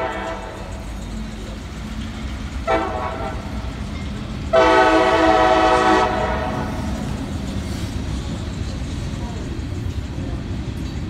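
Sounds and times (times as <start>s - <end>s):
locomotive air horn blast: 0.0s - 0.8s, 2.6s - 3.6s, 4.5s - 6.9s.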